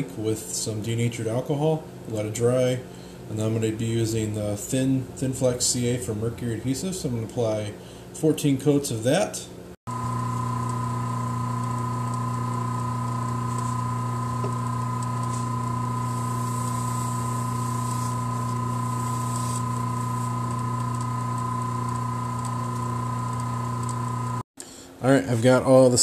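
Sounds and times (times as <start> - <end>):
wood lathe humming with whine: 9.9 - 24.4.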